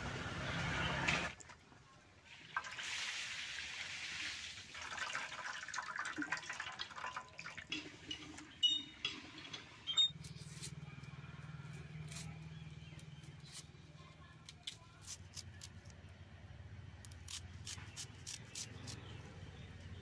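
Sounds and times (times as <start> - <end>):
water splashing in steel bowl: 2.4 - 8.6.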